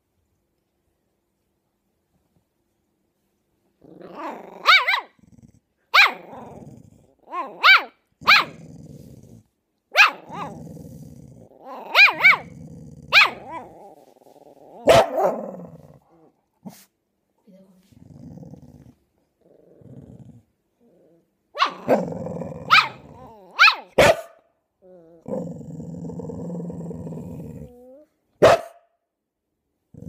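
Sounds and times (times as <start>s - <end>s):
dog growling: 3.8s - 16.5s, 17.8s - 24.0s, 24.8s - 28.1s
dogs barking: 4.6s - 5.1s, 5.9s - 6.3s, 7.4s - 8.6s, 9.9s - 10.5s, 11.9s - 12.5s, 13.1s - 13.6s, 14.8s - 15.4s, 21.6s - 22.0s, 22.7s - 24.4s, 28.4s - 28.8s.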